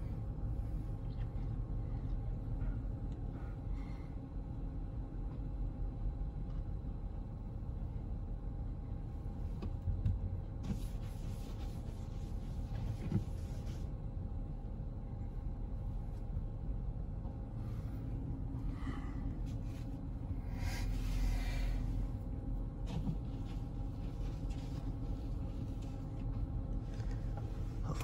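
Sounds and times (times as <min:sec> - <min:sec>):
car cabin low rumble: 0:00.0 - 0:28.0.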